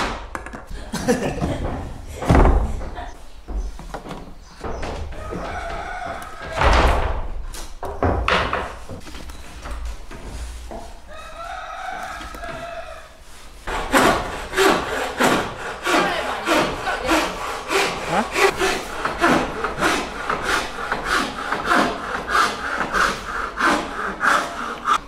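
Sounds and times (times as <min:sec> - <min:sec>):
hand saw cutting wood: 0:13.6 - 0:25.0.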